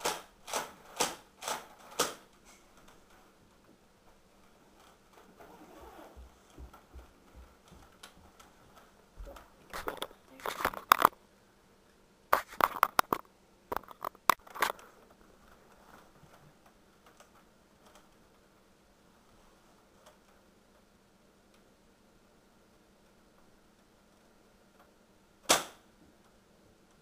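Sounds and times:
camera handling rustling: 0:09.7 - 0:11.2, 0:12.4 - 0:14.8.

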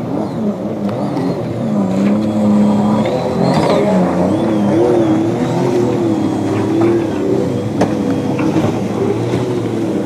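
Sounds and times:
jet ski engines revving: 0:00.0 - 0:10.0.

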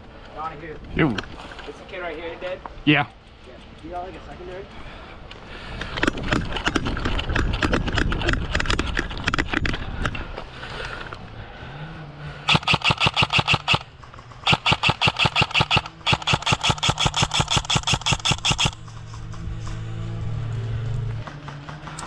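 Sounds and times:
gearbox motor whir: 0:12.4 - 0:22.0
airsoft gun firing bursts: 0:12.5 - 0:18.9.

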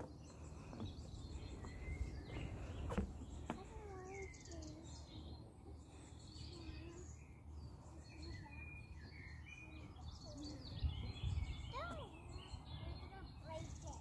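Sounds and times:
songbirds chirping: 0:00.0 - 0:14.0
wind on microphone: 0:10.5 - 0:12.5.

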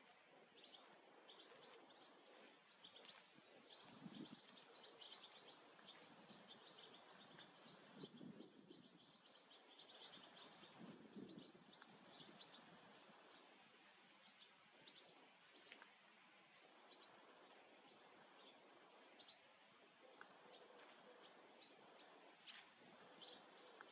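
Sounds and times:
swallows chirping: 0:00.0 - 0:23.9.

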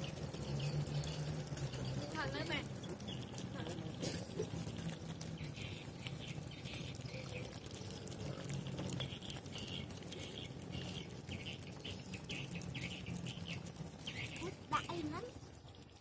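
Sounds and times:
puppies chewing and lapping: 0:00.0 - 0:16.0.

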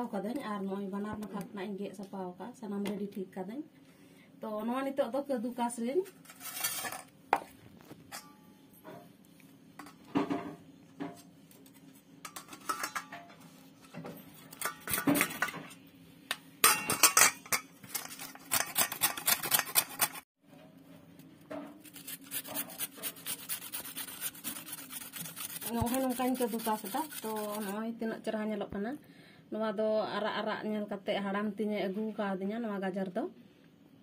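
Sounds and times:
carrots grated on metal grater: 0:18.0 - 0:20.2, 0:21.8 - 0:27.8.

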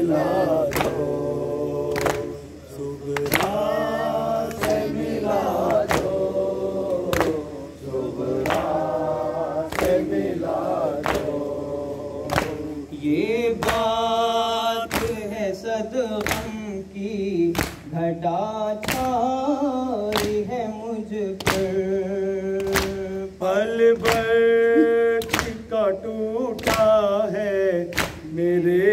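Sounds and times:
crowd of men chanting in unison: 0:00.0 - 0:16.6
rhythmic hand strikes on chest: 0:00.0 - 0:18.0, 0:18.7 - 0:28.9.

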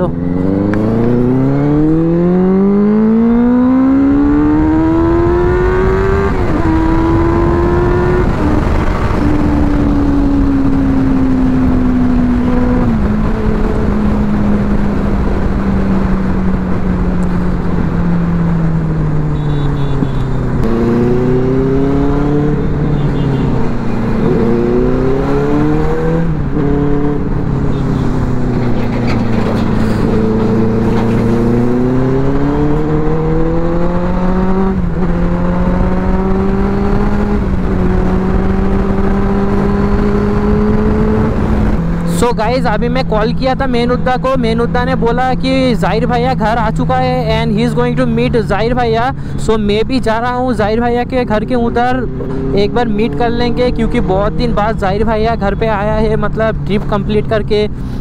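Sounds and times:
motorcycle engine accelerating: 0:00.0 - 0:58.0
wind rush: 0:04.0 - 0:19.2, 0:20.4 - 0:43.6.

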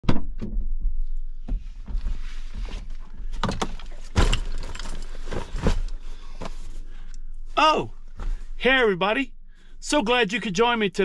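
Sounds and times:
knocks and bumps: 0:00.0 - 0:06.6
backpack rustling: 0:03.8 - 0:07.1.

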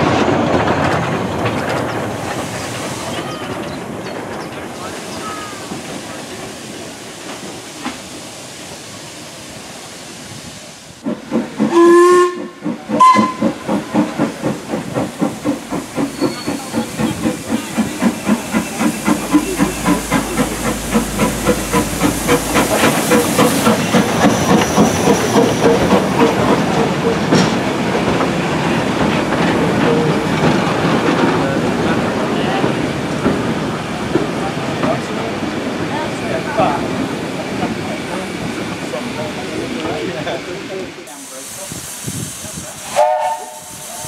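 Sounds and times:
steam locomotive exhaust chuffs: 0:05.0 - 0:31.8, 0:41.1 - 0:44.0
steam locomotive whistle: 0:11.7 - 0:13.6, 0:42.9 - 0:44.0.

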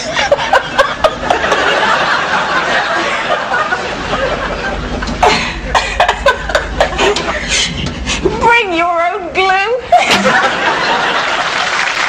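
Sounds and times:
people laughing: 0:00.0 - 0:08.0, 0:09.8 - 0:12.0
low rumble: 0:03.9 - 0:08.4.

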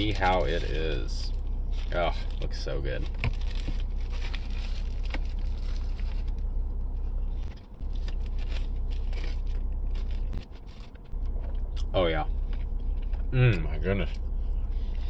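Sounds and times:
low car cabin hum: 0:00.0 - 0:15.0
crunchy chewing: 0:07.0 - 0:15.0.

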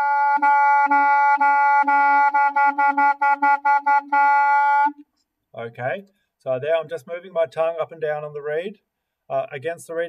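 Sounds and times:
clarinet repeating one note: 0:00.0 - 0:05.0.

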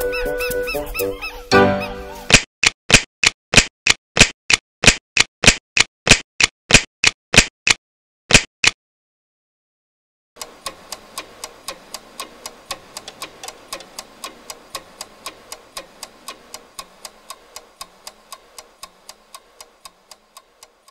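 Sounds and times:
rapid clock-like ticking: 0:10.4 - 0:20.9.

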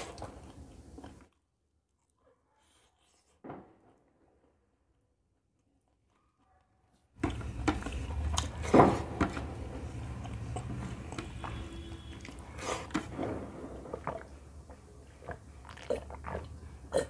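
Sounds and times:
chewing rice: 0:00.0 - 0:03.3, 0:07.2 - 0:17.0.

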